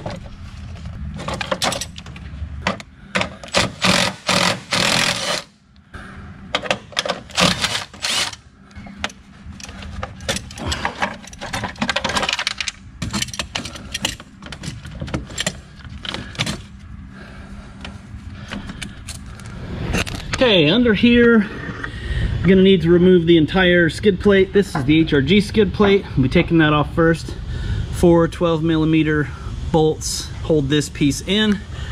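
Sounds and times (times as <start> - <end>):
parts and cables clattering: 0.0 - 5.5, 6.5 - 16.9, 17.8 - 20.4.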